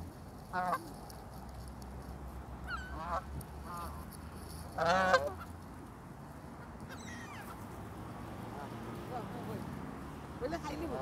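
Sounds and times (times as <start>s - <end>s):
geese honking: 2.6s - 4.1s, 4.7s - 5.5s.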